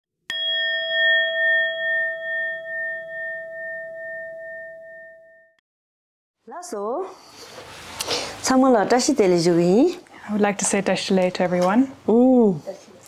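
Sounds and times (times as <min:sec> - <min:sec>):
singing bowl ringing: 0:00.3 - 0:05.6.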